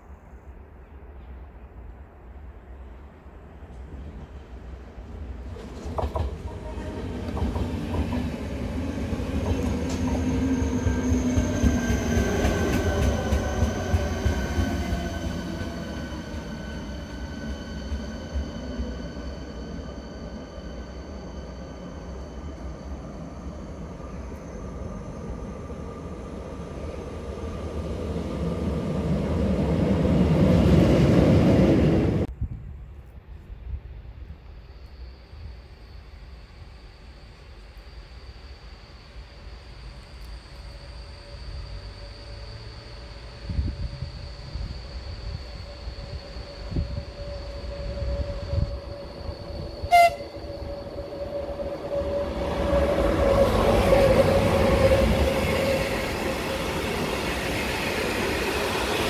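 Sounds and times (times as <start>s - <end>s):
wheels rumbling on rail: 1.0s - 34.3s, 38.8s - 59.0s
electric train whining: 5.2s - 32.3s, 34.8s - 59.0s.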